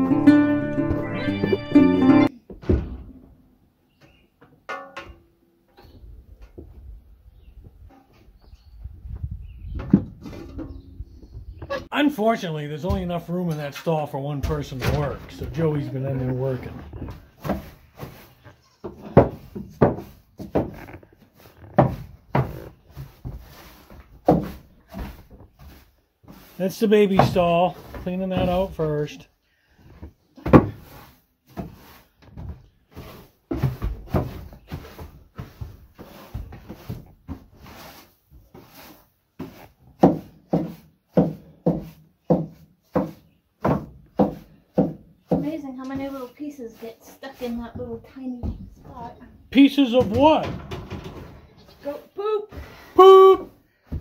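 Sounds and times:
shovel scraping wooden floor: 0:14.4 - 0:28.9, 0:29.9 - 0:48.2
broom sweeping straw: 0:17.5 - 0:18.4, 0:22.9 - 0:27.9, 0:30.8 - 0:32.2, 0:34.2 - 0:42.0, 0:46.0 - 0:47.7.

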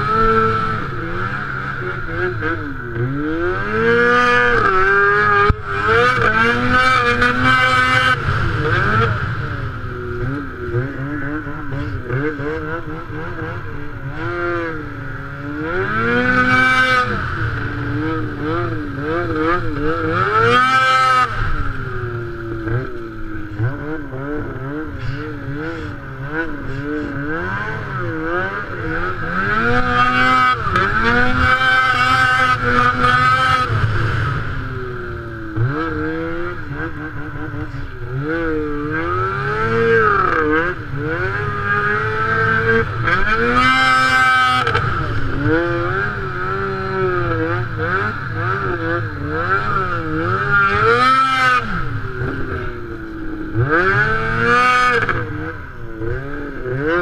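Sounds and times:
snowmobile engine revving: 0:00.0 - 0:57.0.

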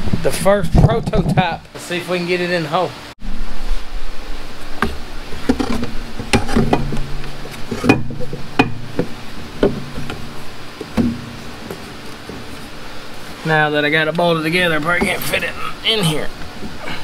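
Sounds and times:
wood and metal knocking on frame: 0:05.5 - 0:12.6.

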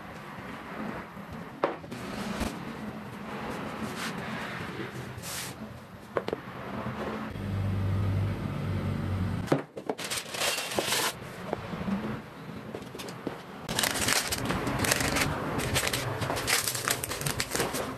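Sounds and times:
pastry crinkling and rustling: 0:09.8 - 0:11.2, 0:13.7 - 0:17.9.

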